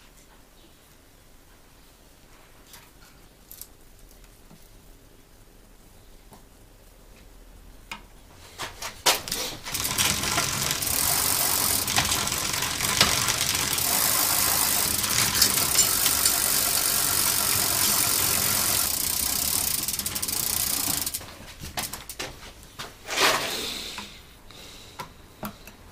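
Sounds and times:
bicycle chain whirring: 9.2s - 22.2s.

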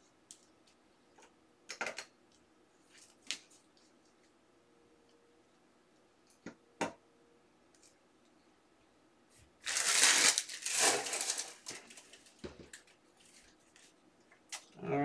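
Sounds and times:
trading cards rustling: 9.6s - 12.4s.

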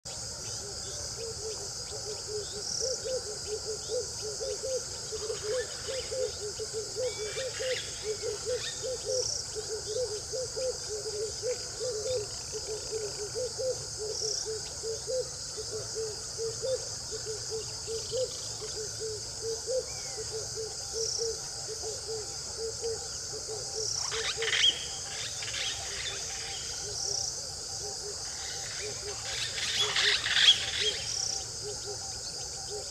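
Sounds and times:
high insect drone: 0.1s - 32.9s.

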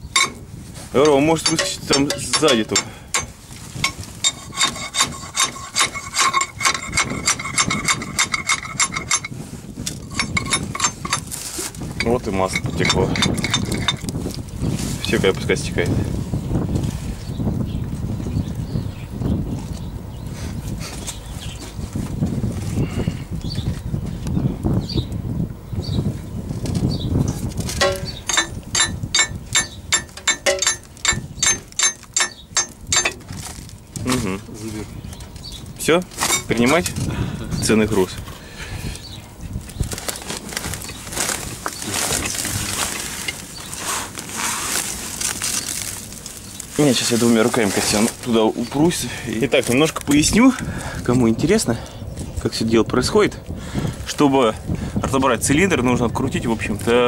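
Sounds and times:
spanner knocking on metal: 0.1s - 0.4s, 1.0s - 11.3s, 12.0s - 14.1s, 27.8s - 33.3s
hammer striking steel: 1.4s - 9.3s, 27.8s - 33.2s
ringing metallic tone: 27.8s - 33.2s.

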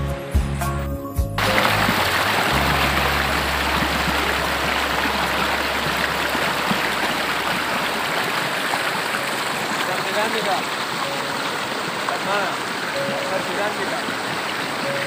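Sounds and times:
low rumble: 1.4s - 8.1s
water rushing over rocks: 1.4s - 15.0s.

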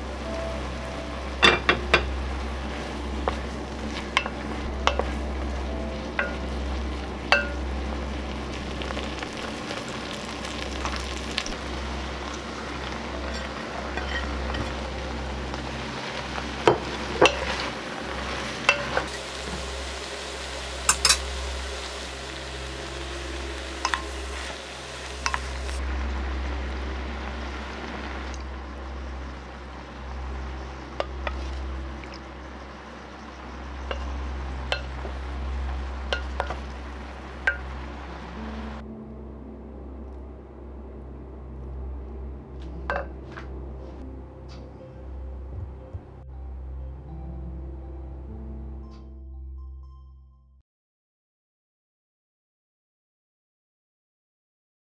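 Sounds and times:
vegetables sizzling in a pot: 0.0s - 38.8s
low hum: 0.0s - 49.8s.

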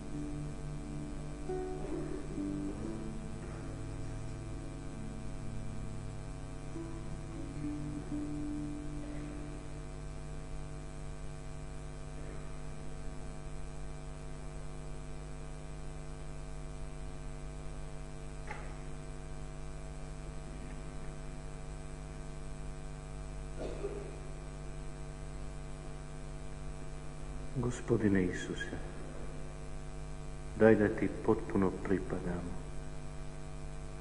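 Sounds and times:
musical note: 0.0s - 5.2s, 6.7s - 9.6s
electrical mains hum: 0.0s - 34.0s.

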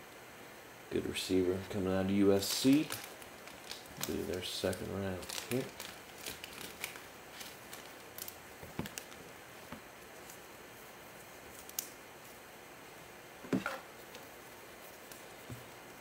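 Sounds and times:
plastic card sleeve rustling: 2.4s - 10.4s.

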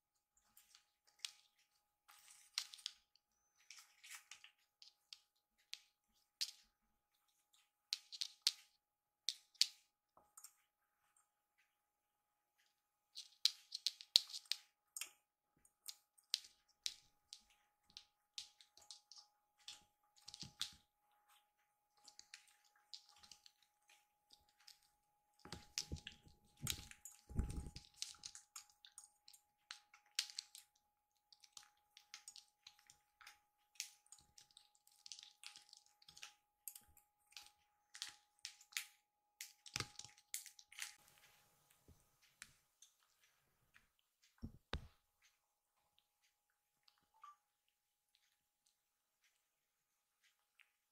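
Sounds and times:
kittens' claws scratching and clicking: 13.1s - 20.8s, 25.4s - 30.7s.

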